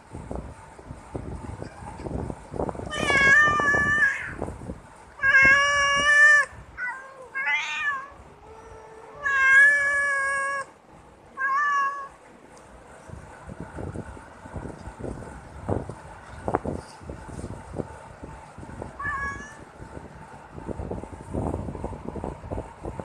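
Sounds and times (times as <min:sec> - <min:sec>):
cats meowing: 0:02.9 - 0:04.4, 0:05.2 - 0:10.7, 0:11.4 - 0:12.2, 0:19.0 - 0:19.6.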